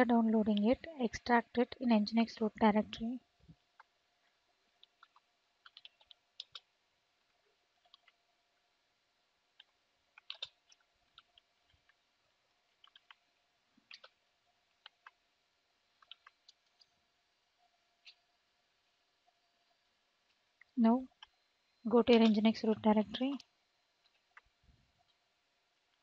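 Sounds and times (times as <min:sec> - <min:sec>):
keyboard keystrokes: 0:04.9 - 0:06.7, 0:09.6 - 0:11.4, 0:12.8 - 0:13.2, 0:13.9 - 0:14.2, 0:16.0 - 0:16.9.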